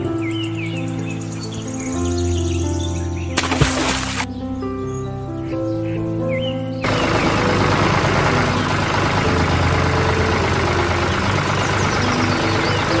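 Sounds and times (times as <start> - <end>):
heavy engine idling: 6.8 - 13.0.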